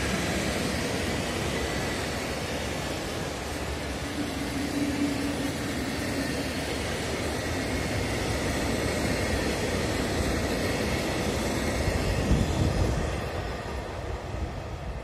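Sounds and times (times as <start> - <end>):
train wheels rumbling on rail: 0.0 - 15.0.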